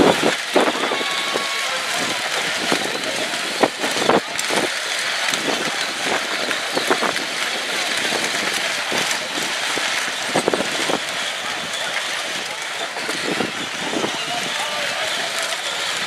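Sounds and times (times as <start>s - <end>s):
plastic wheels crunching on gravel: 0.0s - 16.0s.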